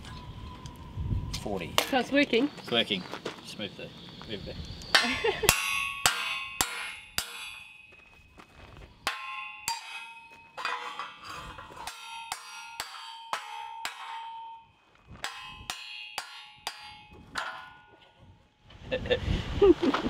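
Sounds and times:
hammer clanging on steel wedge: 0:04.9 - 0:08.1, 0:09.0 - 0:18.4.

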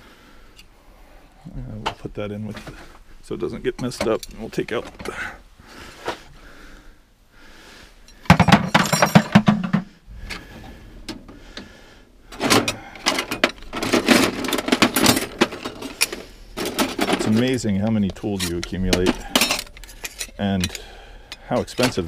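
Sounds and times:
metal hand tools clattering: 0:08.1 - 0:09.9, 0:12.4 - 0:22.0.

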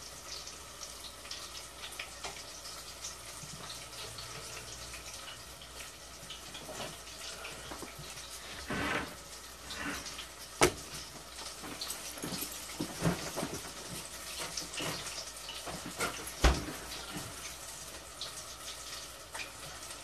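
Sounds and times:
shrimp sizzling in hot oil: 0:00.0 - 0:13.0, 0:13.6 - 0:16.2.

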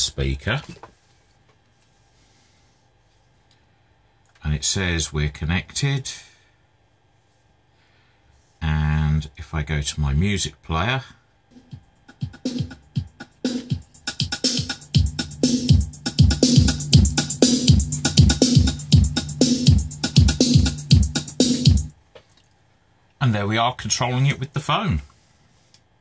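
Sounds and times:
music from speaker: 0:11.5 - 0:21.9
bass drum beat: 0:11.6 - 0:21.9.

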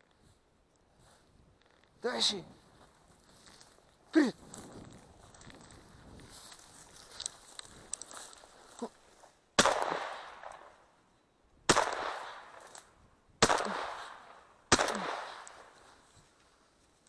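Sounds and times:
shotgun shots with echo: 0:09.6 - 0:10.7, 0:11.7 - 0:12.7, 0:13.4 - 0:15.8.

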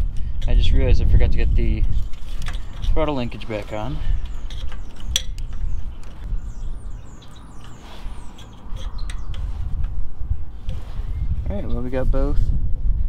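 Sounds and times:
bird chirping: 0:02.1 - 0:10.1.

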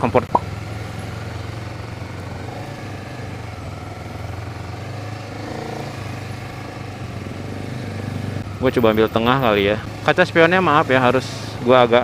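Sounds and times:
motorcycle engine running: 0:00.0 - 0:12.0
road and wind noise: 0:00.0 - 0:12.0.

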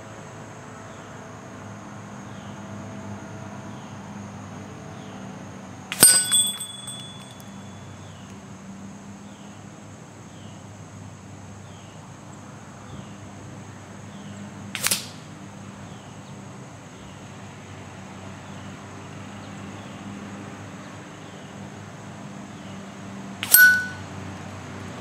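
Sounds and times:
pellet striking steel target: 0:05.9 - 0:07.7, 0:23.4 - 0:24.0
small bell chiming: 0:06.0 - 0:08.0, 0:23.4 - 0:24.1.

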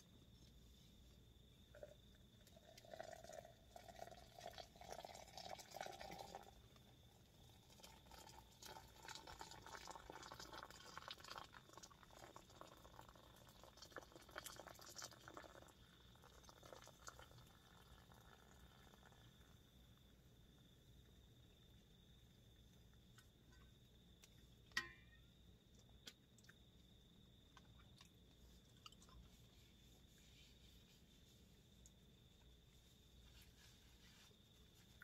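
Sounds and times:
water pouring into cup: 0:01.7 - 0:06.6, 0:07.5 - 0:19.3.

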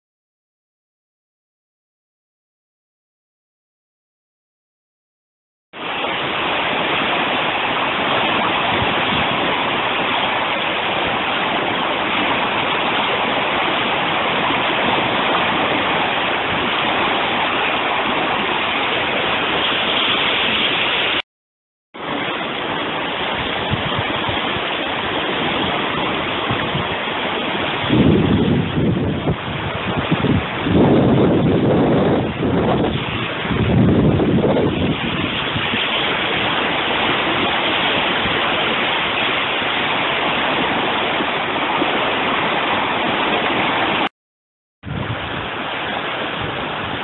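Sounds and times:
river rushing: 0:05.8 - 0:21.2, 0:22.0 - 0:44.1, 0:44.8 - 0:47.0
wind buffeting microphone: 0:05.8 - 0:21.2, 0:22.0 - 0:44.1, 0:44.8 - 0:47.0.

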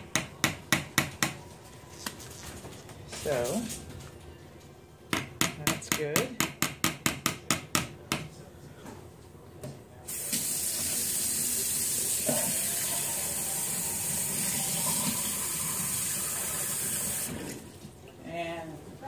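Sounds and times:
water running from a tap: 0:10.1 - 0:17.7.

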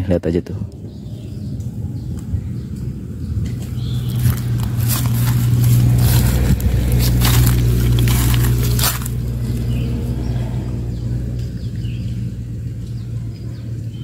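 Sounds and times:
steady low hum: 0:00.6 - 0:14.0
footsteps in dry leaves: 0:03.6 - 0:10.5.

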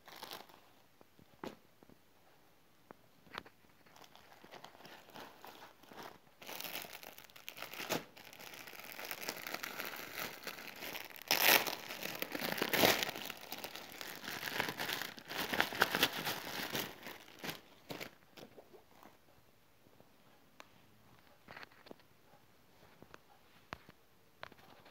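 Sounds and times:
plastic packets crinkling: 0:00.0 - 0:00.8, 0:03.8 - 0:18.5.

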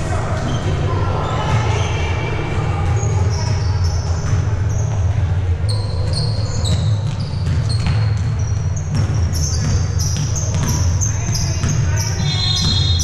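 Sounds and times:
basketball bouncing: 0:02.8 - 0:13.0
sneaker squeaks on court floor: 0:02.8 - 0:13.0.

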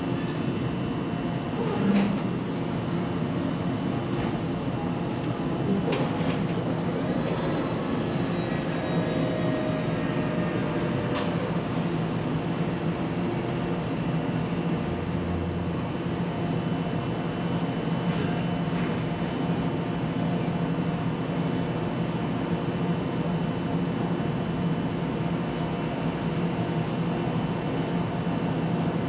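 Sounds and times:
tram rumbling on rails: 0:05.2 - 0:13.8.

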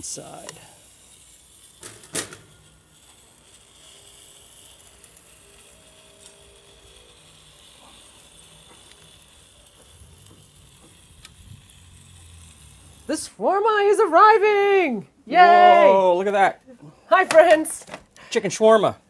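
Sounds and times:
meat sizzling over charcoal: 0:00.0 - 0:14.8.

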